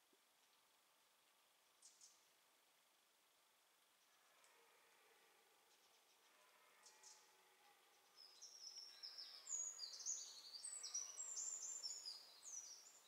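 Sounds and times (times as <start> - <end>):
songbird singing: 1.7 - 2.3, 5.7 - 13.0.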